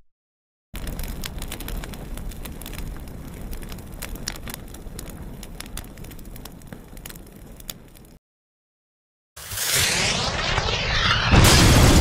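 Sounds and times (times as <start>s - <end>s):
fire crackling and popping: 0.8s - 8.2s.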